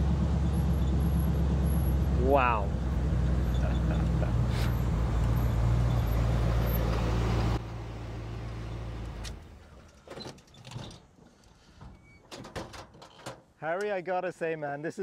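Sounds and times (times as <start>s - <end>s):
truck engine running: 0.0s - 9.6s.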